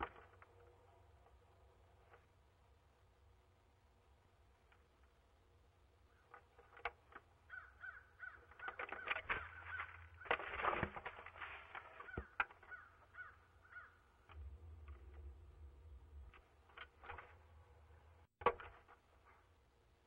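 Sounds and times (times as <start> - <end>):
crows cawing: 7.5 - 10.4, 11.9 - 14.1.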